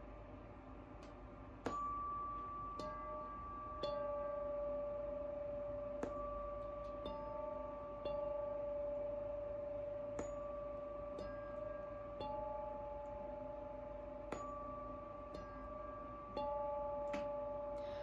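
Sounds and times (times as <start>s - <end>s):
felt mallet tapping tuning fork: 1.0s - 18.0s
tuning fork ringing tone: 1.0s - 18.0s.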